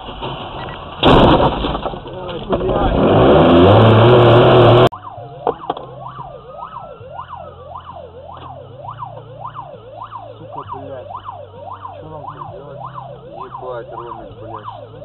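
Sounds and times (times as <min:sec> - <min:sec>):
loud rough noise: 0:01.0 - 0:04.9
siren wailing: 0:03.3 - 0:15.0.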